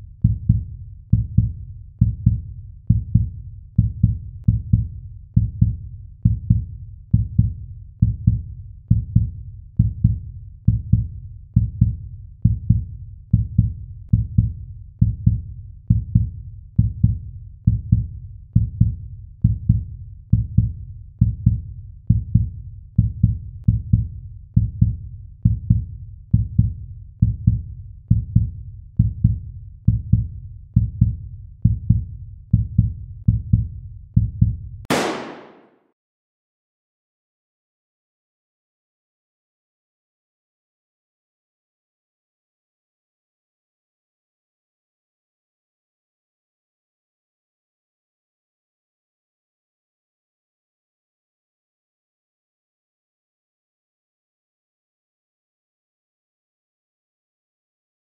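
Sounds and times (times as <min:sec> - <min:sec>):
heartbeat double thump: 0:05.5 - 0:11.0.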